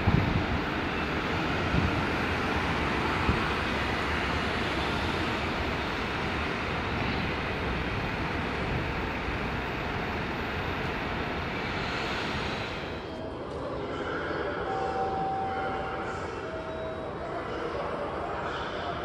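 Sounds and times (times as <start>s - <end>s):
city street traffic: 0.0s - 13.6s.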